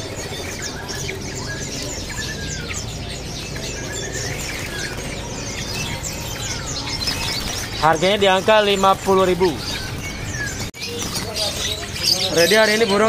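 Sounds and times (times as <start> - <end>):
birds chirping: 0.0 - 13.0
wings fluttering against cage: 3.4 - 12.5.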